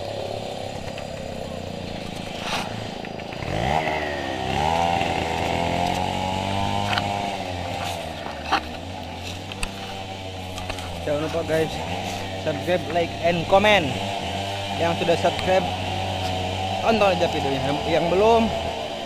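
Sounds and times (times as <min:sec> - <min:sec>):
chainsaw revving: 0:00.0 - 0:19.0.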